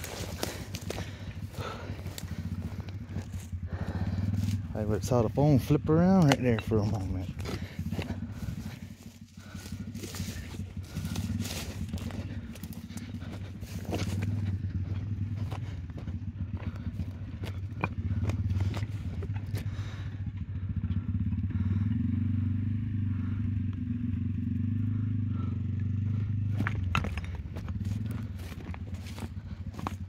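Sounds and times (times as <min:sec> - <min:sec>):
hooves on stones: 0:00.0 - 0:20.1, 0:26.2 - 0:30.0
steady low drone: 0:00.0 - 0:30.0.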